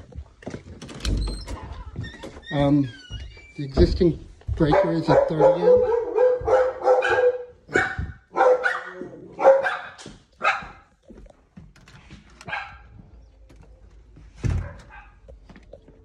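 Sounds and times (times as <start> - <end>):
dog barking: 4.6 - 10.9, 12.4 - 13.0, 14.5 - 15.3.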